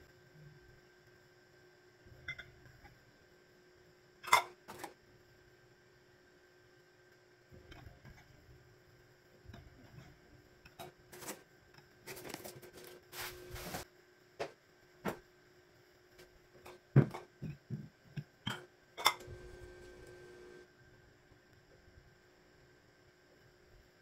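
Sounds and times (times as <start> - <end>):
cardboard scraping and rustling: 12.1 - 13.8.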